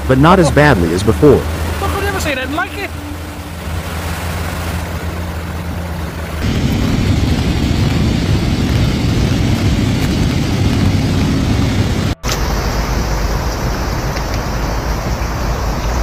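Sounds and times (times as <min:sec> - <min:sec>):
rushing floodwater: 0:00.0 - 0:16.0
wind buffeting the microphone: 0:06.4 - 0:12.3.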